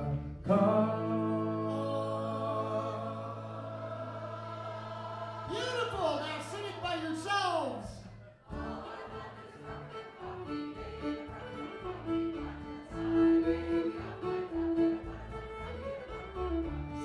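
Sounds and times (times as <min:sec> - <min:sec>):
fiddle playing melody: 0:00.0 - 0:04.0, 0:08.6 - 0:17.0
acoustic guitar accompaniment: 0:00.0 - 0:06.5, 0:08.0 - 0:17.0.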